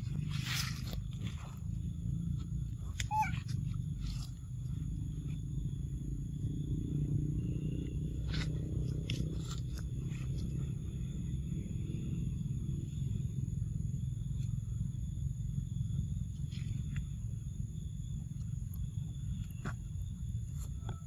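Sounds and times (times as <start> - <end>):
leaves rustling: 0.0 - 1.7
monkey squeak: 3.0 - 3.5.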